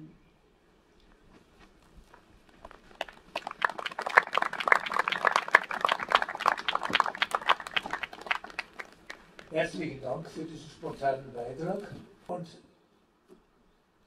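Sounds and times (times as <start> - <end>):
audience clapping: 2.9 - 9.5.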